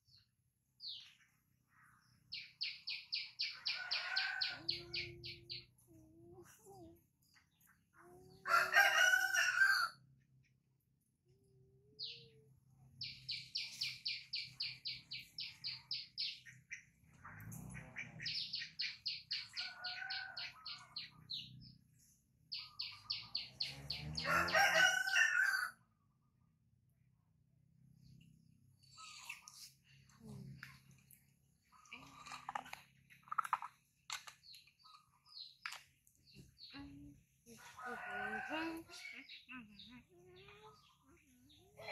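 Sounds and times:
small bird chirping: 0:00.0 - 0:08.3, 0:11.8 - 0:24.3, 0:28.0 - 0:37.1
rooster crowing: 0:03.8 - 0:05.0, 0:08.5 - 0:10.0, 0:23.9 - 0:25.8.

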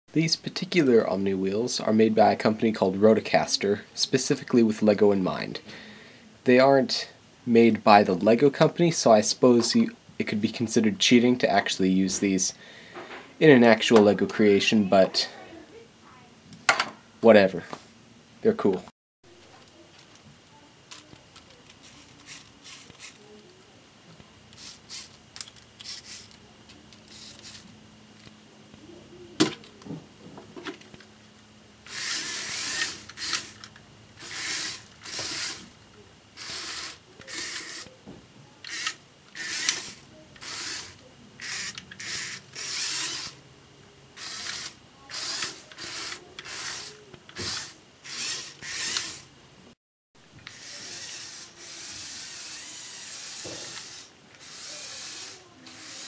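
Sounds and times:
electric motors whirring: 0:20.9 - 0:23.4, 0:24.5 - 0:28.4, 0:30.8 - 0:43.4, 0:44.1 - 0:49.3, 0:50.4 - 0:56.0
plastic clicks: 0:25.3 - 0:27.6.

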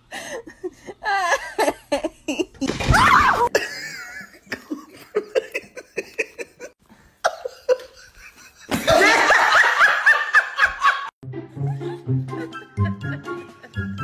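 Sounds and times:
people laughing: 0:03.4 - 0:14.0.

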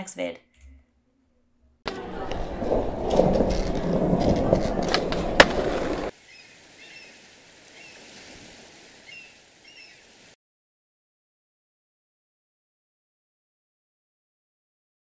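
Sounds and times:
faint outdoor ambience: 0:01.8 - 0:10.4
skateboard clacks: 0:01.9 - 0:06.1
skateboard wheels rolling: 0:01.9 - 0:06.2
bird chirps: 0:06.3 - 0:07.2, 0:09.0 - 0:10.1.

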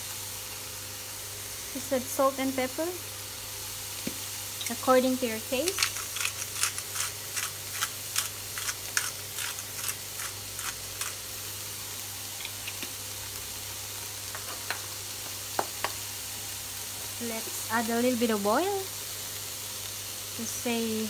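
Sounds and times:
vegetables sizzling in a pan: 0:00.0 - 0:21.0
pepper grinder clicking: 0:05.7 - 0:11.2.

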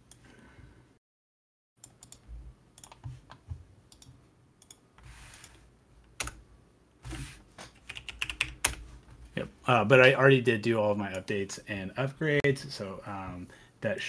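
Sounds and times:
computer mouse clicks: 0:01.8 - 0:02.2, 0:02.8 - 0:04.8
keyboard clicks: 0:02.8 - 0:04.8, 0:07.7 - 0:08.8.

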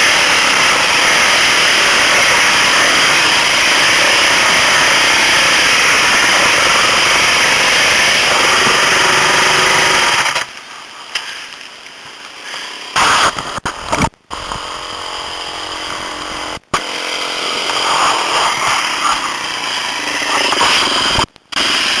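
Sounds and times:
motorcycle engine running: 0:00.0 - 0:10.1.

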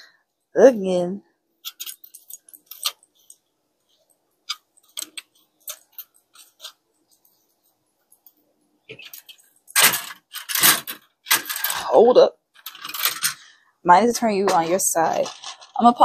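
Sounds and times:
plastic parts clicking: 0:12.6 - 0:13.4.

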